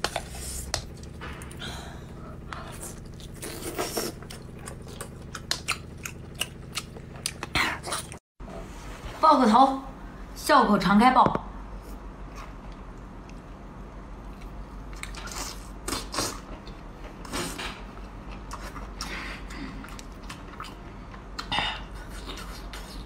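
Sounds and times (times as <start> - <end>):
wet chewing sounds: 2.5 - 8.2.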